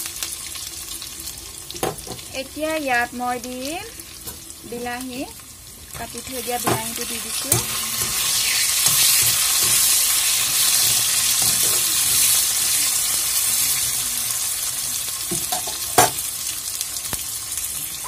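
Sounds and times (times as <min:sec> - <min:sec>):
vegetables sizzling in hot oil: 0:00.0 - 0:18.0
spatula scraping pan: 0:06.3 - 0:12.4.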